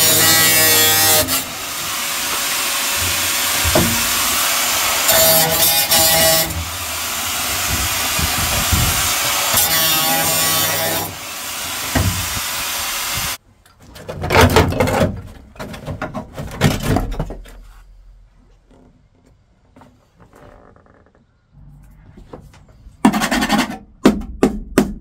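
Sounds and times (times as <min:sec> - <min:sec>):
angle grinder grinding steel: 0:00.0 - 0:13.4.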